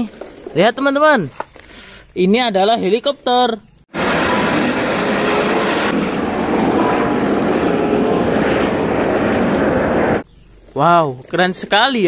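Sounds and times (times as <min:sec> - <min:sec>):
helicopter rotor and turbine: 0:03.9 - 0:10.7.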